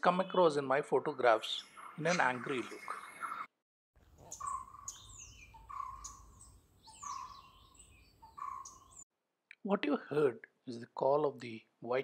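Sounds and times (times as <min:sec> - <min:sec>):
bird low repeated call: 0:04.2 - 0:09.0.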